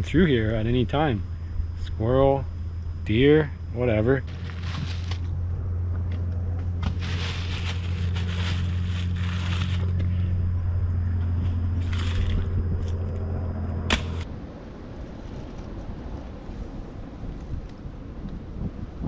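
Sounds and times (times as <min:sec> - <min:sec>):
steady low hum: 0:00.0 - 0:19.0
leaves and plastic bag rustling: 0:04.2 - 0:05.4, 0:06.8 - 0:10.0, 0:11.4 - 0:12.5.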